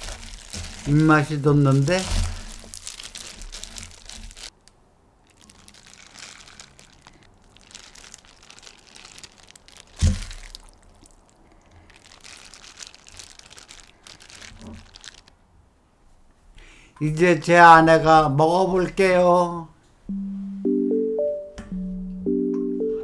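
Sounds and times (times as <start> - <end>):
plastic glove crinkling: 0.0 - 15.3
wet noodles squishing: 0.0 - 15.3.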